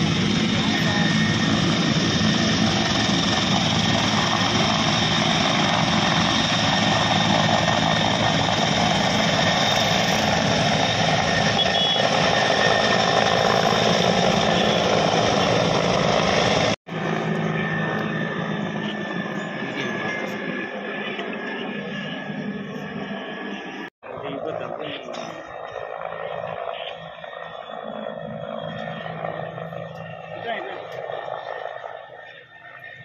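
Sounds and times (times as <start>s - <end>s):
helicopter rotor and turbine drone: 0.0s - 33.0s.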